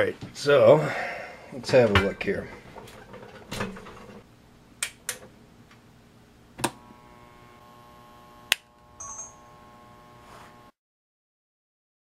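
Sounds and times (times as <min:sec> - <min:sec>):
steady electrical hum: 0:00.0 - 0:10.8
sharp electrical clicks: 0:06.6 - 0:10.7.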